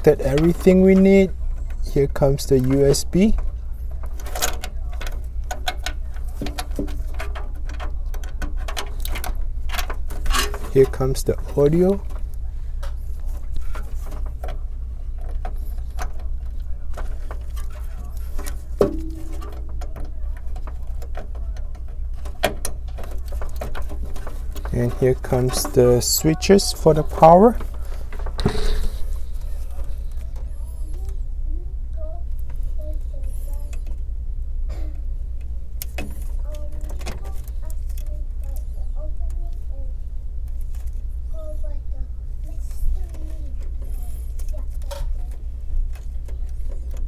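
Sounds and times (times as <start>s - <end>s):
cables rustling: 0.0s - 47.0s
steady low hum: 0.0s - 47.0s.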